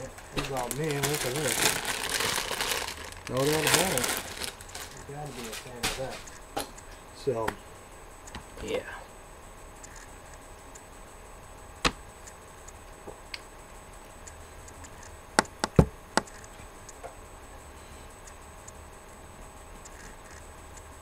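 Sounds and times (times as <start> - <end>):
faint steady hum: 0.0 - 21.0
sharp clicks: 9.8 - 10.9, 14.2 - 17.0.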